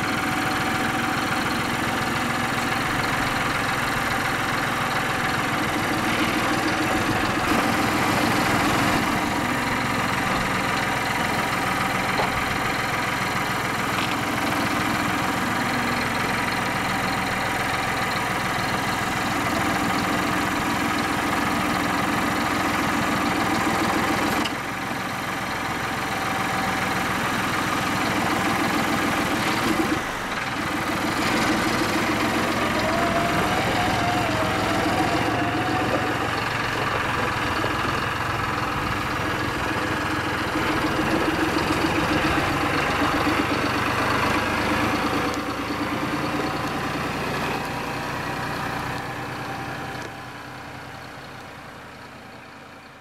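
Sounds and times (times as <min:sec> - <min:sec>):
hydraulics working: 0:00.0 - 0:50.2
tractor diesel engine running: 0:00.0 - 0:53.0.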